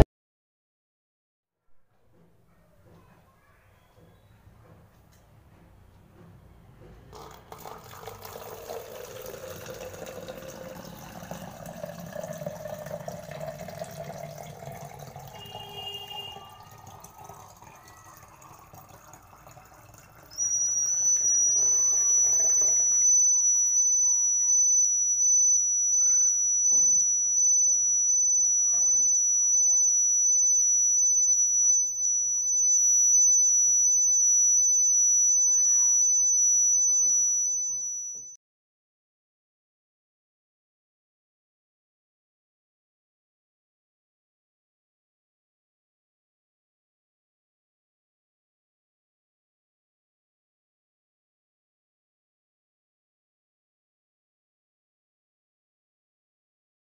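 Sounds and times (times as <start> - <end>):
water pouring into plastic bottle: 7.2 - 22.9
high-pitched buzzer alarm: 14.6 - 18.1, 20.2 - 38.4.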